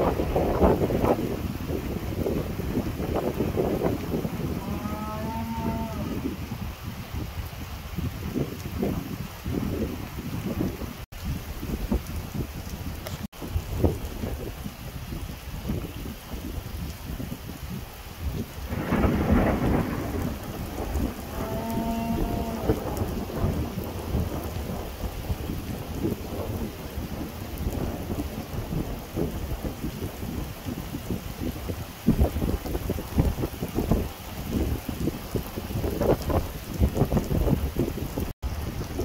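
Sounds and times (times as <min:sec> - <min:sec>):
thunder rumbling: 0:00.0 - 0:07.0, 0:18.2 - 0:39.0
heavy rain downpour: 0:00.0 - 0:39.0.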